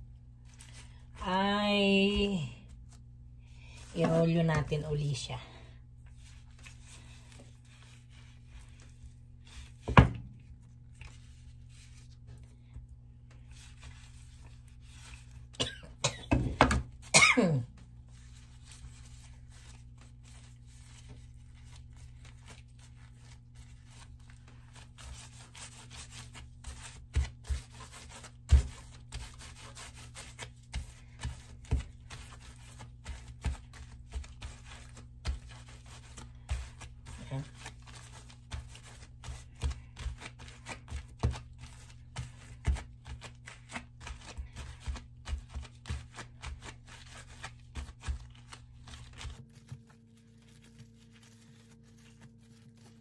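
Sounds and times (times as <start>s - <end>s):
plastic rustling: 17.8s - 53.0s.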